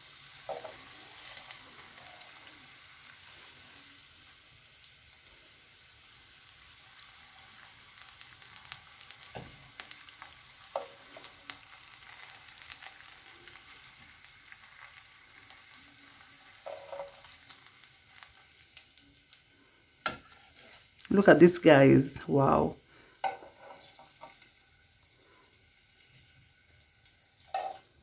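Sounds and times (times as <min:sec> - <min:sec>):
bacon sizzling in frying pan: 0:00.0 - 0:28.0.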